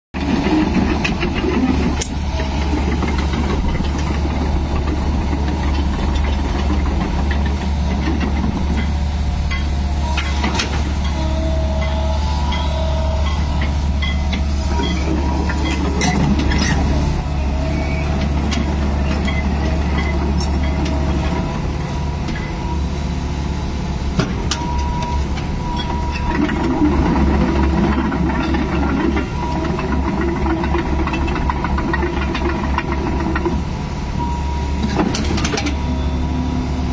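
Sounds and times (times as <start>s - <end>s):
excavator boom clanks: 0.2s - 22.6s, 24.1s - 33.7s, 34.8s - 36.1s
excavator diesel engine hum: 0.2s - 36.9s
hydraulic whines: 9.5s - 18.2s.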